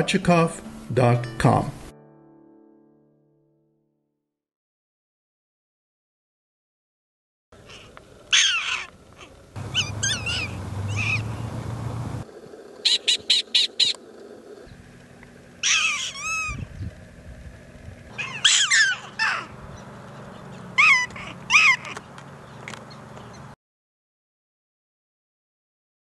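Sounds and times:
prairie dogs barking and chirping: 7.6s - 12.2s, 12.8s - 14.8s, 15.6s - 17.0s, 18.1s - 23.5s
low rumble: 9.6s - 12.4s.

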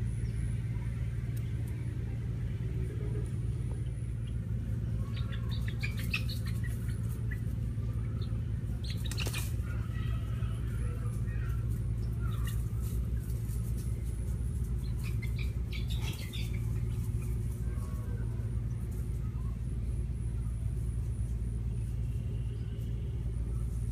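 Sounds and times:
steady low rumble: 0.0s - 23.9s
bird chirps: 4.2s - 9.6s, 14.8s - 17.4s.

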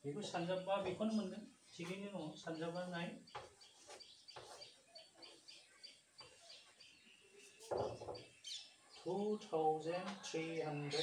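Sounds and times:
small birds chirping: 0.0s - 11.0s
chalk tapping and scraping on blackboard: 3.3s - 5.4s.

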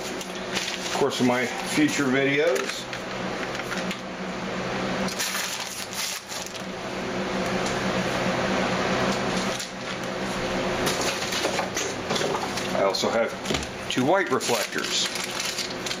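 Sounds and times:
plastic packaging crinkling: 5.1s - 6.7s, 14.0s - 16.0s.

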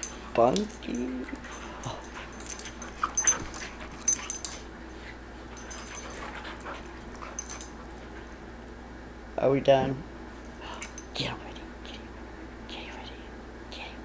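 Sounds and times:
dogs scuffling: 0.0s - 8.4s.

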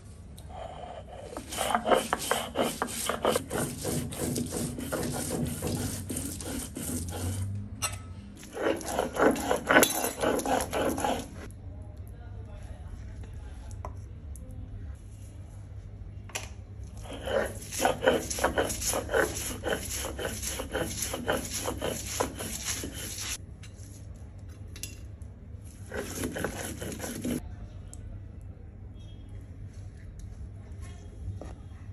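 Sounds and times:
grinding stone rasping on slab: 0.5s - 7.5s, 8.4s - 11.5s, 17.0s - 23.4s, 25.8s - 27.4s.

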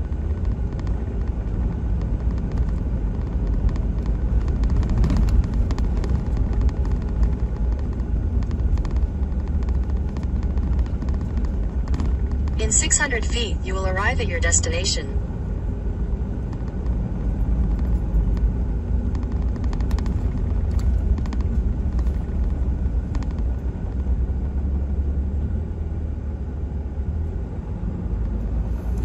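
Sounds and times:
truck engine and road rumble: 0.0s - 29.0s.

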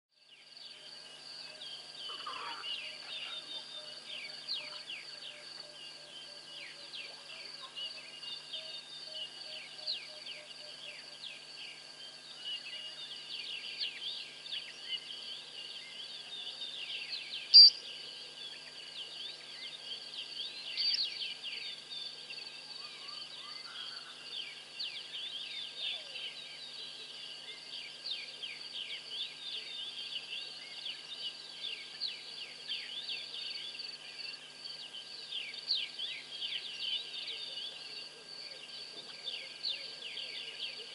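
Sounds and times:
crickets and insects trilling: 0.2s - 40.9s
sharp high chirp: 17.6s - 17.8s.

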